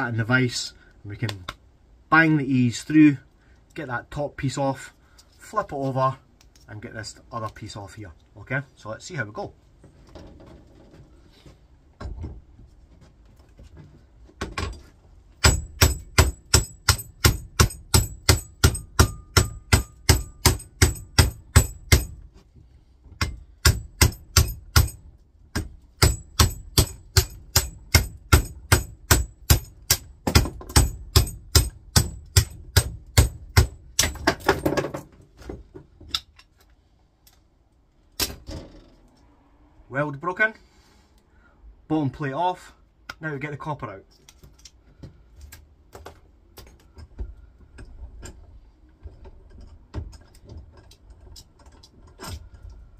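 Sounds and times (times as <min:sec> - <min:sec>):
hammer striking metal: 0:15.4 - 0:22.2, 0:23.2 - 0:25.0, 0:25.6 - 0:34.3.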